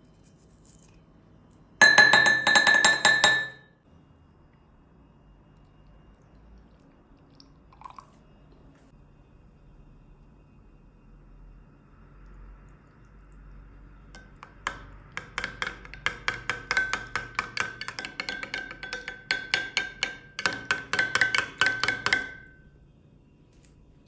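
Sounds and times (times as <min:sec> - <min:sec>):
spoon clinking against glass bowl: 0:01.8 - 0:03.8, 0:14.2 - 0:22.6.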